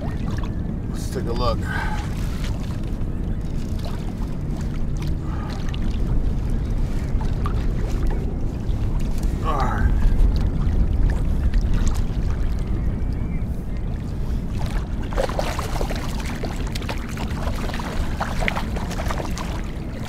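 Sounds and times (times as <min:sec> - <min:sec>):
wind and water rumble: 0:00.0 - 0:20.0
fish splashing: 0:14.5 - 0:20.0.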